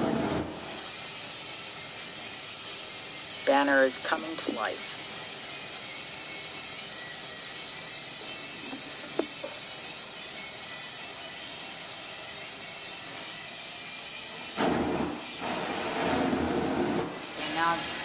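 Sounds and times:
gas torch flame hissing: 0:00.0 - 0:18.0.

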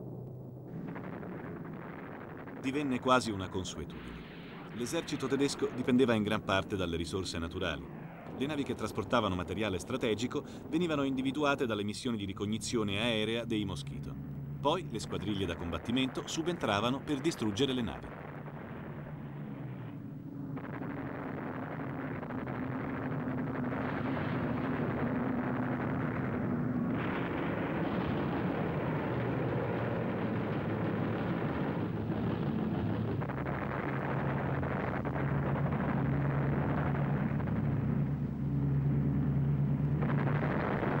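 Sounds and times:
explosions: 0:00.0 - 0:41.0
aircraft engines droning: 0:35.0 - 0:41.0.

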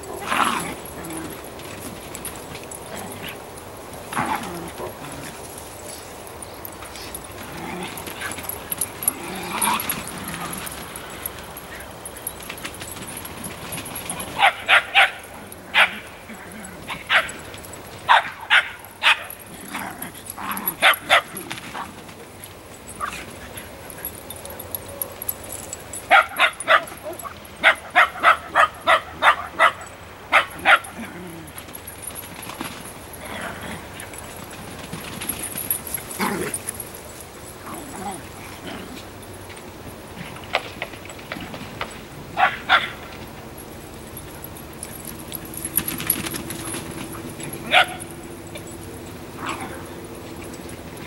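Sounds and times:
dog barking: 0:14.4 - 0:16.0, 0:18.1 - 0:19.3, 0:26.1 - 0:30.9, 0:42.4 - 0:43.0, 0:47.7 - 0:48.1.

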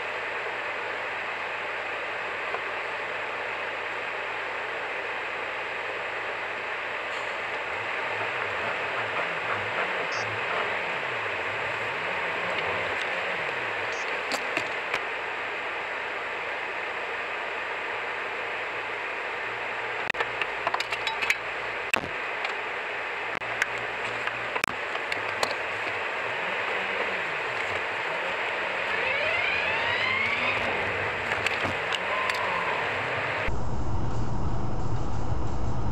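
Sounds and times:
car road and wind noise: 0:23.4 - 0:35.9.

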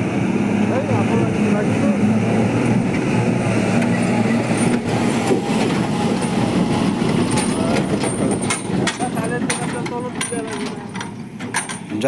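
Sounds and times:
diesel truck driving past: 0:00.0 - 0:09.4
clicks and knocks: 0:07.3 - 0:11.9.

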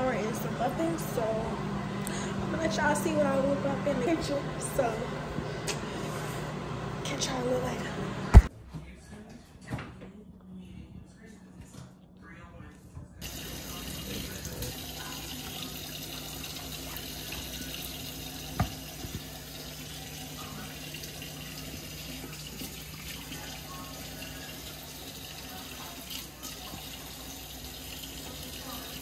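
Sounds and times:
tap water running into sink: 0:13.2 - 0:29.0.

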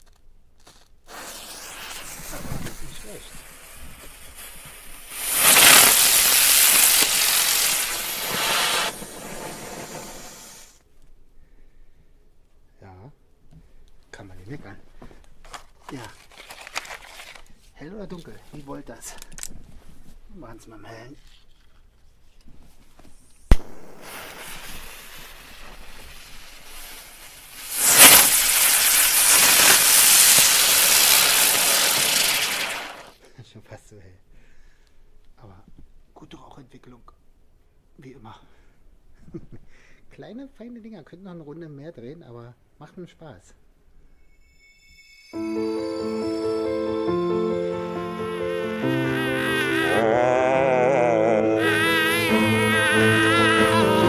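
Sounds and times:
fuse hissing faintly: 0:00.9 - 0:16.3, 0:17.2 - 0:44.0
firework hissing: 0:01.0 - 0:10.8, 0:23.4 - 0:33.2, 0:47.5 - 0:50.3, 0:51.6 - 0:54.0.

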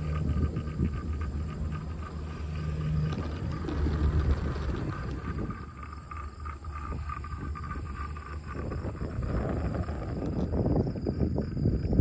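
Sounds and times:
faint high whine: 0:00.0 - 0:12.0
wind buffeting microphone: 0:00.0 - 0:12.0.

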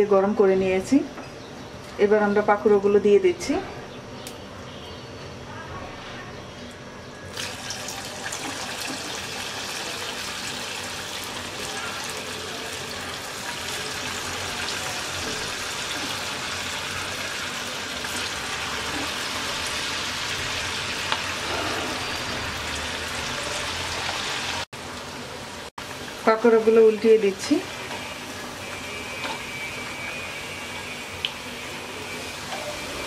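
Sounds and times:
fritters sizzling in hot oil: 0:07.3 - 0:33.0.

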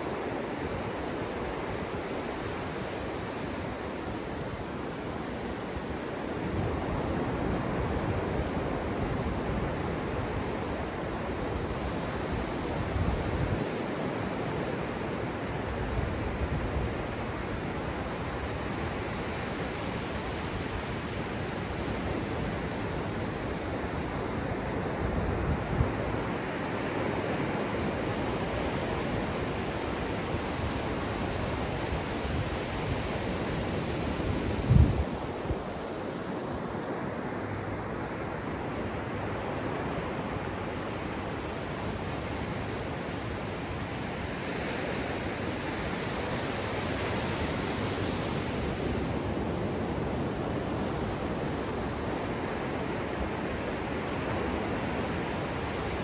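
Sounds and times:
small waves breaking on sand: 0:00.0 - 0:56.0
wind buffeting microphone: 0:31.9 - 0:35.8.

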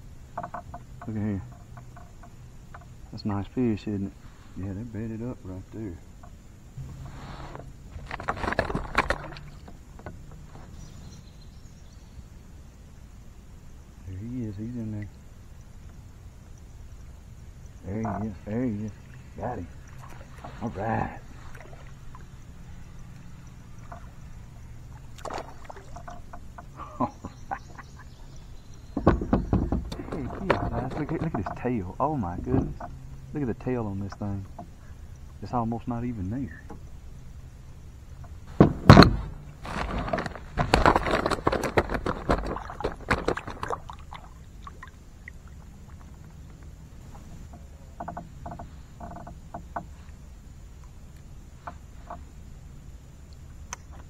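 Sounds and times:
low steady hum: 0:00.0 - 0:54.0
water splashing: 0:06.8 - 0:10.0, 0:17.8 - 0:22.7, 0:23.7 - 0:27.6, 0:39.4 - 0:46.5
knocks on plastic kayak: 0:29.0 - 0:31.3, 0:38.6 - 0:39.3.

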